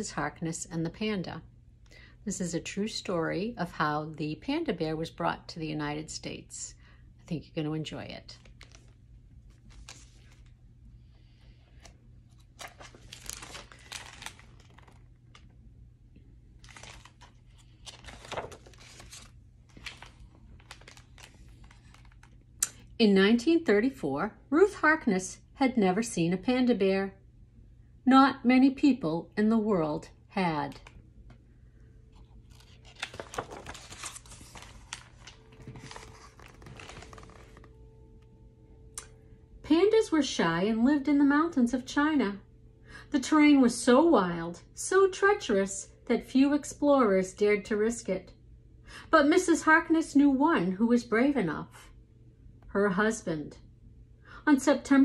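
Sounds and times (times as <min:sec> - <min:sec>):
book pages rustling: 0:08.4 - 0:10.6, 0:11.4 - 0:15.5, 0:16.6 - 0:22.4, 0:32.1 - 0:37.8.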